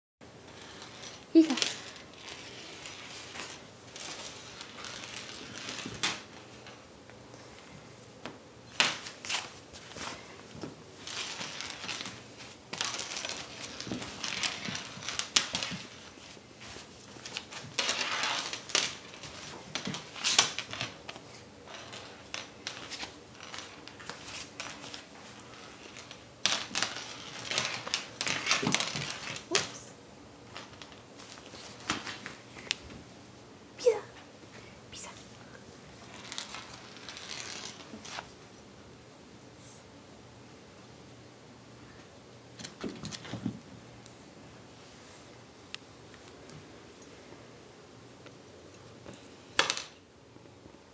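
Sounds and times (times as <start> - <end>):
lanyard clinking on wooden floor: 0.5 - 7.3, 8.7 - 32.8, 36.0 - 38.7, 48.2 - 50.0.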